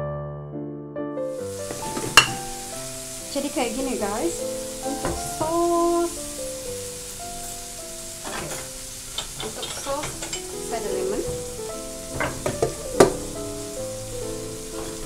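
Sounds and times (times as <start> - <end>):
background music: 0.0 - 9.1, 9.9 - 15.0
frying sizzle: 1.3 - 15.0
ceramic dishes knocking on wood: 2.0 - 2.4, 12.2 - 13.2.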